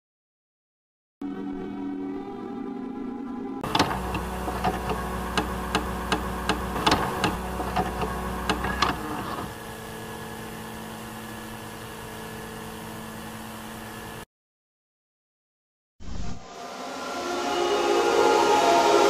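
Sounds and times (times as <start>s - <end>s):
electrical hum with faint whine: 3.6s - 14.2s
tape mechanism motor whir: 3.6s - 14.2s.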